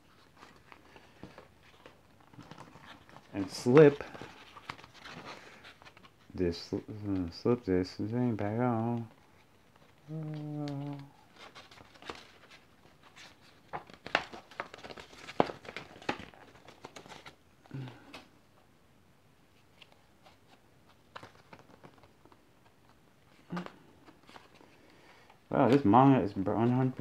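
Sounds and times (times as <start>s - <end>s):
paper rustling and crinkling: 0.0s - 7.4s, 8.7s - 18.3s, 19.6s - 24.8s
pages flipping: 0.1s - 6.2s, 8.8s - 18.3s, 19.6s - 24.8s
person humming low: 10.0s - 11.2s.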